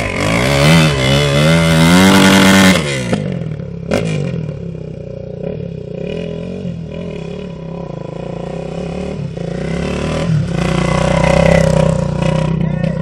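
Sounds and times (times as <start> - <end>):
dirt bike engine revving: 0.0 - 13.0
wheel spinning in loose dirt: 8.3 - 13.0.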